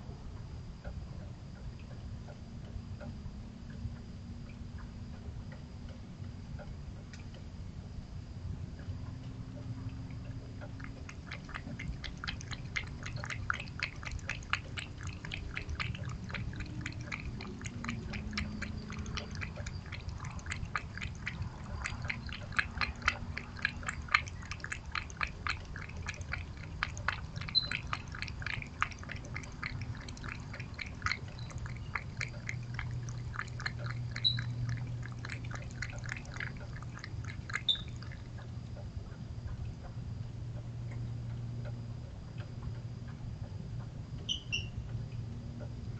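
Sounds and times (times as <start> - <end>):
cat lapping from a steel bowl: 9.5 - 39.7.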